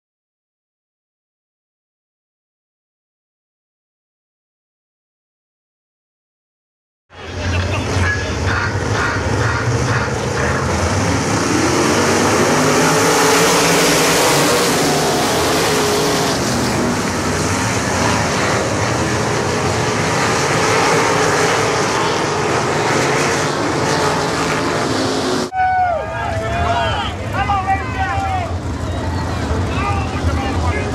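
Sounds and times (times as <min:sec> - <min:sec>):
racing car engines passing: 0:07.2 - 0:30.9.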